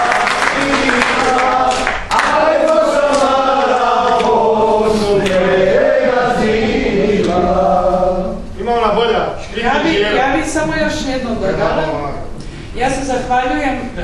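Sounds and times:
crowd singing in unison: 0.0s - 8.6s.

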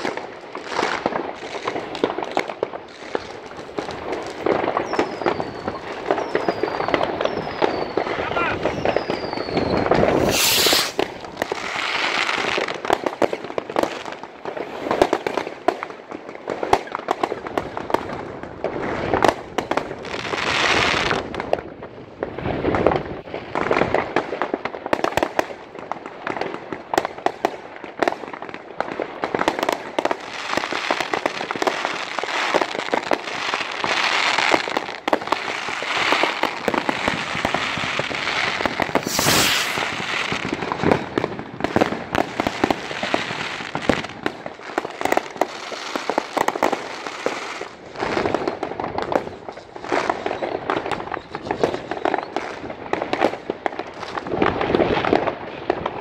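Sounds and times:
fireworks bangs and crackles: 0.0s - 56.0s
loud hiss: 10.2s - 11.0s, 39.0s - 40.1s.

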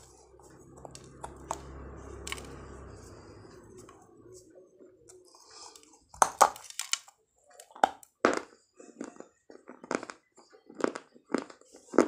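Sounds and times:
chewing crunches: 7.6s - 12.0s.

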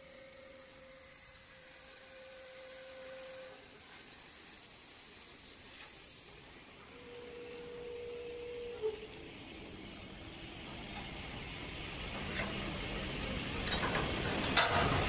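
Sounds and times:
gantry drive whine: 6.6s - 15.0s.

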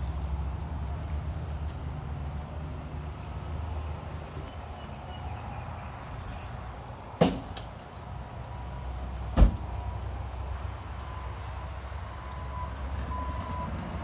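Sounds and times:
truck door thumps: 9.3s - 9.7s.

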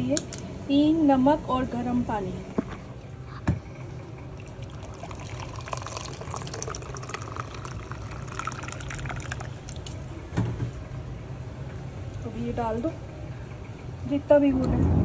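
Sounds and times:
water pouring into plastic bowl: 4.3s - 9.9s.

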